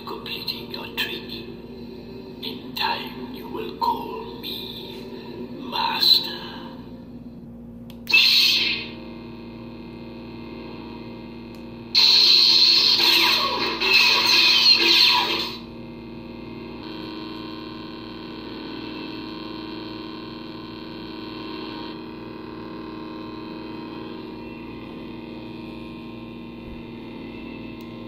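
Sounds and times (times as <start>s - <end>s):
electronic hum from speaker: 0.0s - 28.0s
loud electronic burst: 8.1s - 9.0s, 11.9s - 15.7s.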